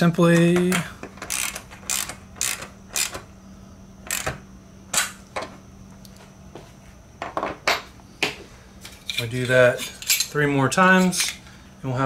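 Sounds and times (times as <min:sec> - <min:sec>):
ratcheting wrench clicking: 0:01.2 - 0:03.2, 0:04.1 - 0:04.3.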